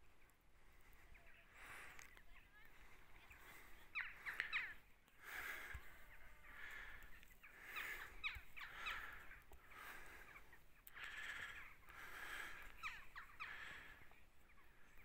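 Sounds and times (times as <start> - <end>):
crows cawing: 6.4 - 14.2.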